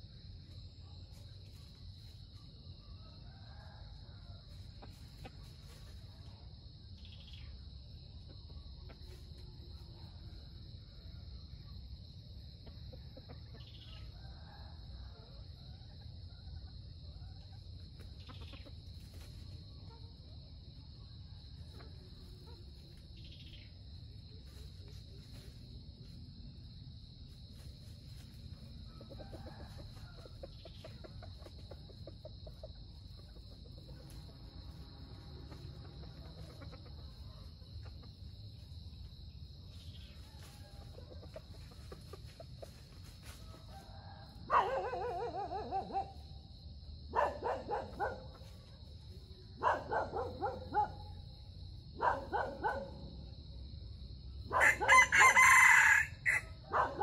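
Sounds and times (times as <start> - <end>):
junglefowl calling: 54.5 - 57.0.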